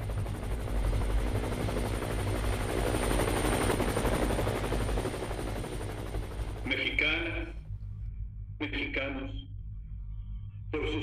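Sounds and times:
helicopter rotor beat: 0.0 - 7.7.

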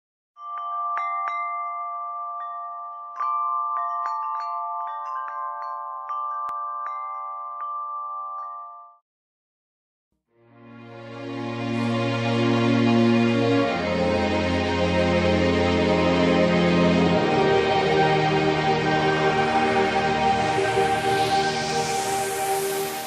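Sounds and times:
music: 0.4 - 8.5, 10.2 - 23.0
chimes ringing: 0.4 - 9.0.

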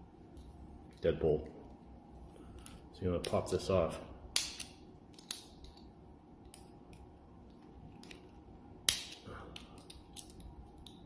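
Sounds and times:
metal lock parts clicking: 7.9 - 11.0.

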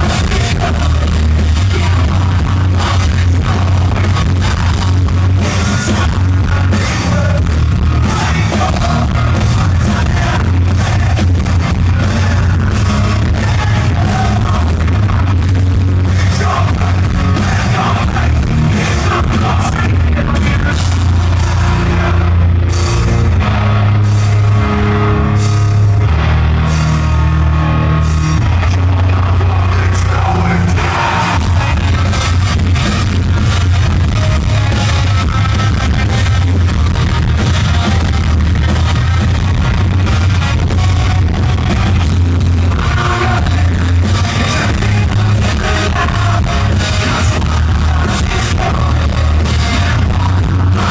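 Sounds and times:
person singing: 0.0 - 22.2, 28.6 - 32.9, 42.5 - 50.9
bass guitar: 0.0 - 50.9
drum kit: 0.0 - 50.9
electric guitar: 0.0 - 50.9.

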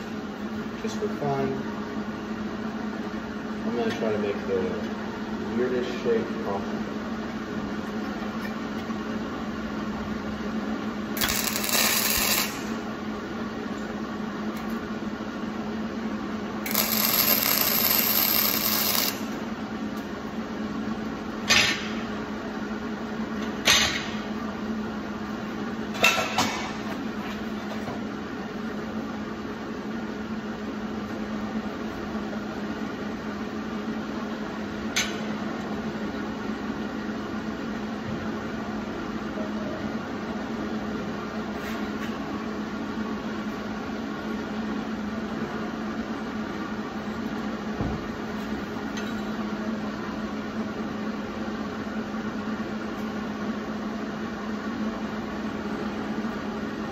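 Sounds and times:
steady low hum: 0.0 - 56.9
welding arc crackling: 11.1 - 12.9, 16.6 - 19.4.

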